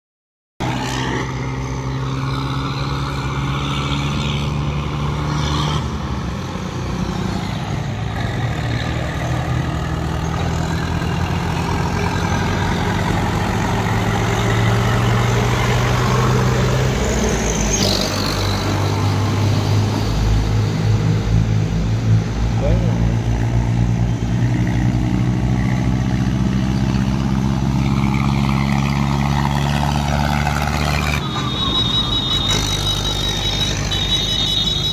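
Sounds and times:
tractor diesel engines running: 0.6 - 34.9
short high-pitched squeal: 30.6 - 34.9.

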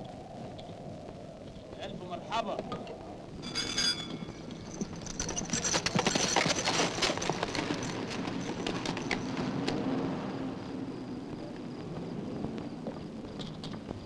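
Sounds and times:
faint jingle: 3.4 - 9.4.

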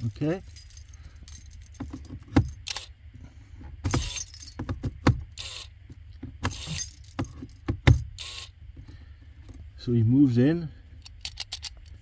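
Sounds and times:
steering lock motor rattling: 3.8 - 5.7, 6.4 - 8.5.

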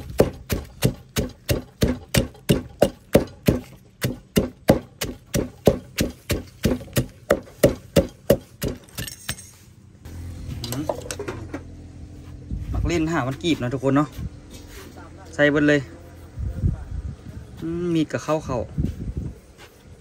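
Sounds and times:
pestle pounding in mortar: 0.0 - 9.1.

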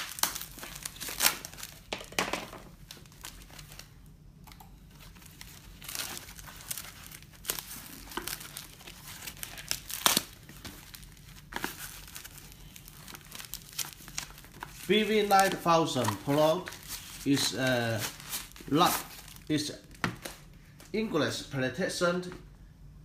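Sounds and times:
package tearing rips: 0.0 - 1.9, 5.1 - 19.6
plastic and foam crinkling: 0.0 - 4.0, 4.8 - 20.9.

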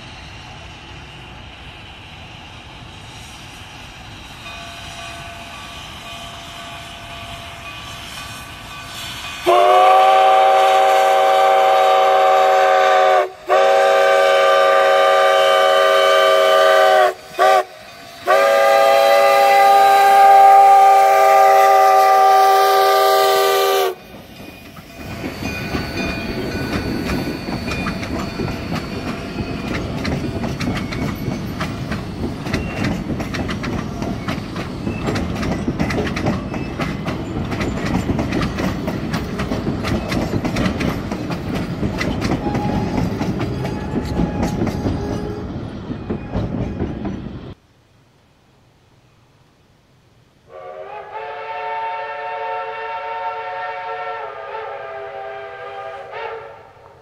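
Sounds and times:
steam whistle blasts: 9.4 - 24.0, 42.4 - 43.0, 50.5 - 57.0
wheels clicking over rail joints: 24.0 - 47.6.

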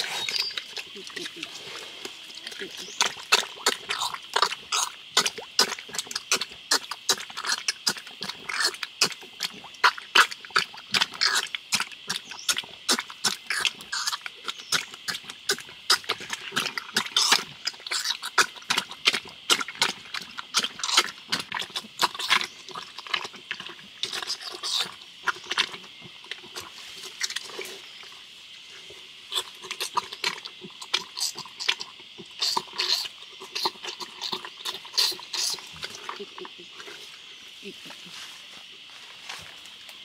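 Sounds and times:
piglets squealing and grunting: 11.2 - 18.8, 32.4 - 36.5.

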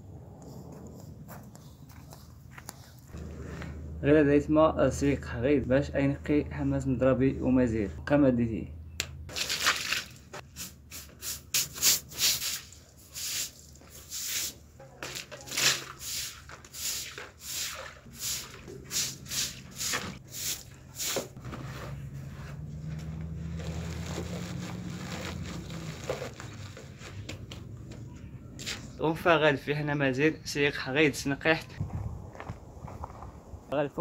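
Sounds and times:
push broom scraping wet concrete: 15.2 - 21.4.

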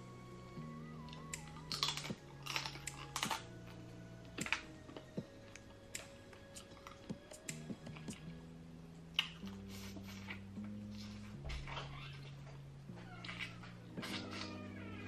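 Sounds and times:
soft background music: 0.0 - 15.0
wet mouth clicks and smacks: 1.1 - 3.4, 9.2 - 10.4.

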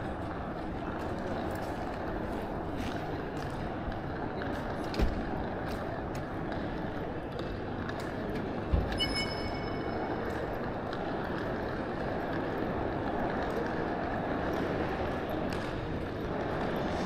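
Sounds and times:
high ringing tone: 8.9 - 10.3.

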